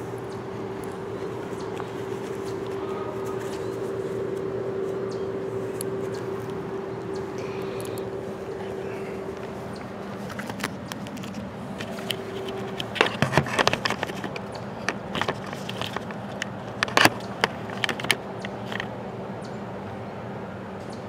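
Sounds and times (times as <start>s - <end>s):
low hum: 0.0s - 21.0s
camera handling noise: 9.3s - 18.9s.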